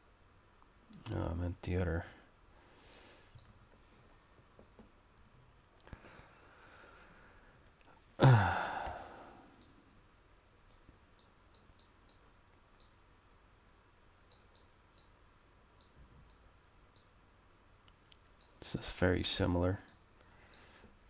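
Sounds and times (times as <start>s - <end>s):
computer mouse clicks: 2.9s - 3.7s, 10.6s - 13.0s, 14.3s - 15.2s, 15.8s - 17.1s, 17.9s - 18.7s, 19.8s - 21.0s
person sighing loudly: 8.2s - 9.6s.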